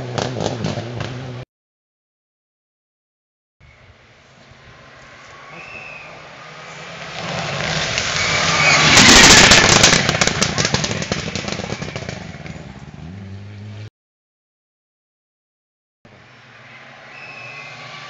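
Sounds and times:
rally car engine at full throttle: 0:00.0 - 0:01.4, 0:04.2 - 0:13.9
sharp exhaust cracks: 0:06.7 - 0:12.8.

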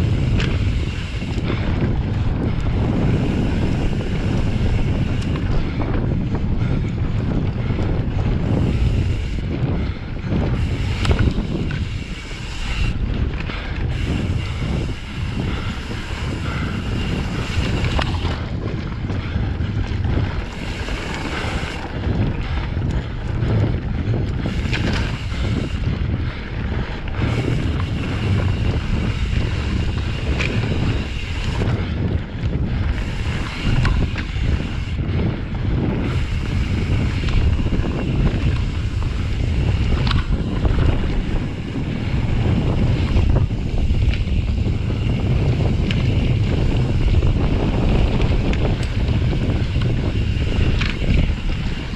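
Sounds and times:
tyres rolling on dirt: 0:00.0 - 0:51.9
wind buffeting microphone: 0:00.0 - 0:51.9.

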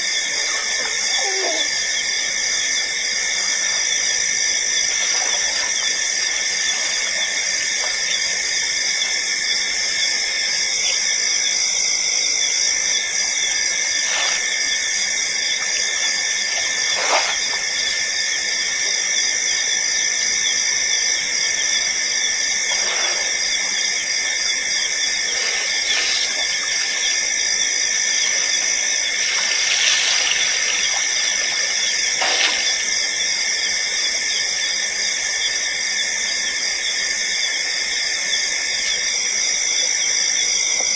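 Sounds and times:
night insects chorus: 0:00.0 - 0:40.9.

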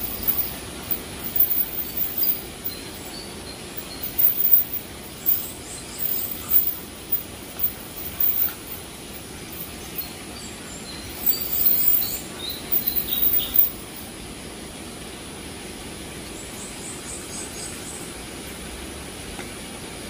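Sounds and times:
sharp rattling bursts: 0:00.0 - 0:10.4, 0:11.0 - 0:14.2
steady background hiss: 0:00.0 - 0:20.0
high bird chirps: 0:01.2 - 0:13.9.

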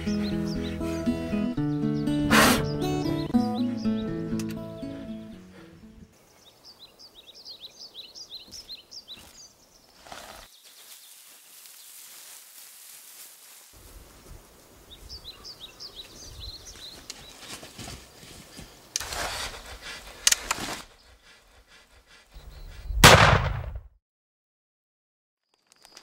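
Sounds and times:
birds chirping: 0:00.0 - 0:12.0, 0:14.8 - 0:23.0
rifle shot: 0:23.0 - 0:23.9.

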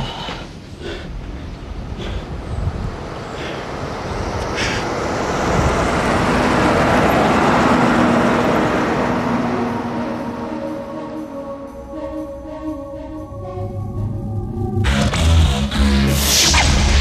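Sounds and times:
broad rushing noise: 0:00.0 - 0:11.4.

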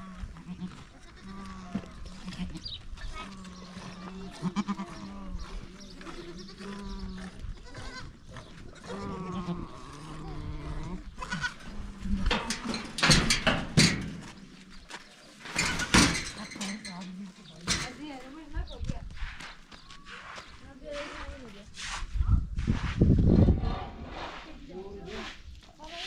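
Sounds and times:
goats bleating: 0:00.0 - 0:05.5, 0:06.2 - 0:12.2
loud sharp knocks and rattles: 0:12.3 - 0:14.4, 0:15.5 - 0:16.6.

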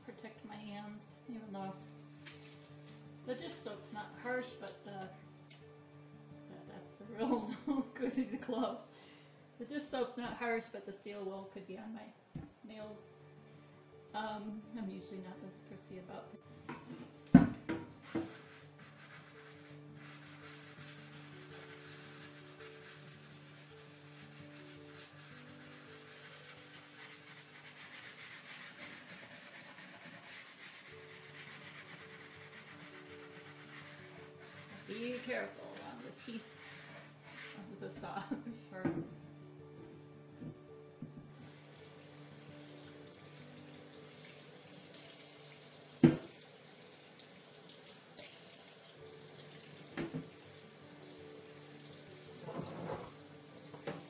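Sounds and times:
steel wool scrubbing metal blade: 0:18.1 - 0:37.6
water running in a sink: 0:41.4 - 0:54.0
saw knocking on sink: 0:46.0 - 0:46.3.

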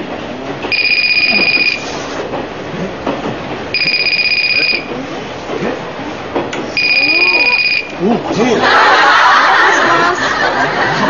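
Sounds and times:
steady background noise: 0:00.0 - 0:11.0
warbling telephone ringer: 0:00.7 - 0:01.8, 0:03.8 - 0:04.9, 0:06.8 - 0:08.0.

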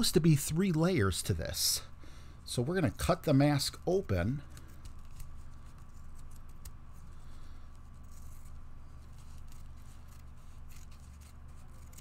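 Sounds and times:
steady low hum: 0:00.0 - 0:12.0
scissors snipping: 0:06.0 - 0:06.8, 0:09.3 - 0:12.0.

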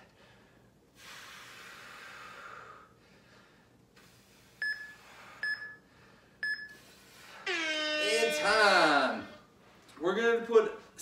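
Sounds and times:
timer beeps: 0:04.6 - 0:05.8, 0:06.4 - 0:06.8.

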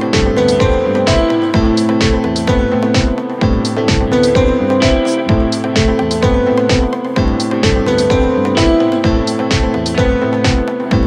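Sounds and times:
instrumental music with beat: 0:00.0 - 0:11.0.

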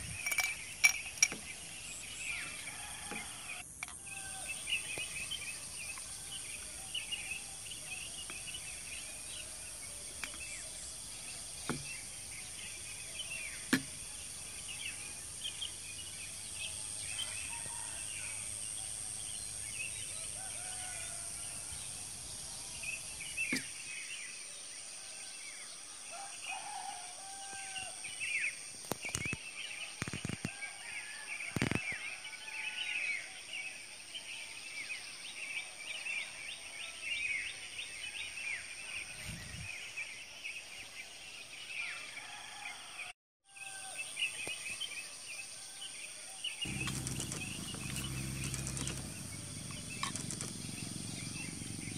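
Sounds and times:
birds chirping: 0:46.6 - 0:51.9
insect drone: 0:46.6 - 0:51.9.

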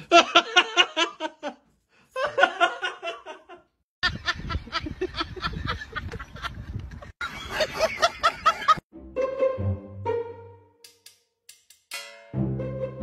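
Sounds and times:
person laughing: 0:02.2 - 0:06.6, 0:07.2 - 0:08.8.

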